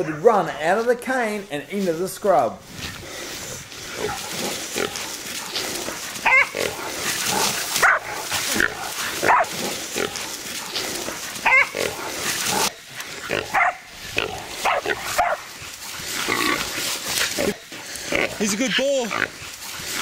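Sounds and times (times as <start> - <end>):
rustle and crash of grass: 1.2 - 20.0
dogs barking: 3.9 - 17.6
boar squealing: 5.7 - 9.5, 11.0 - 15.4.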